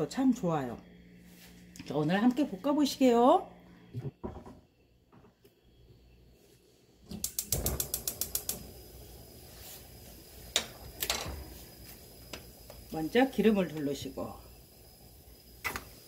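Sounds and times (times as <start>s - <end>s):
gas flame hissing: 0.0s - 4.9s, 5.5s - 16.0s
gas stove igniter clicking: 7.1s - 9.1s, 10.4s - 11.6s, 12.2s - 14.2s.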